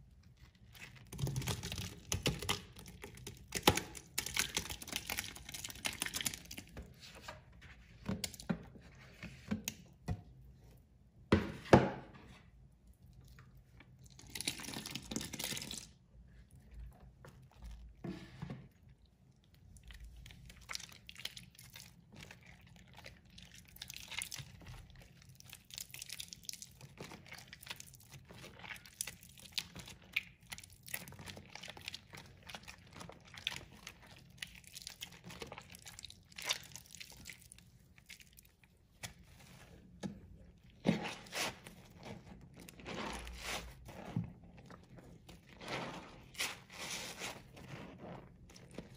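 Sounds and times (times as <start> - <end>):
hands squelching wet soap: 0.0 - 11.3, 12.4 - 48.9.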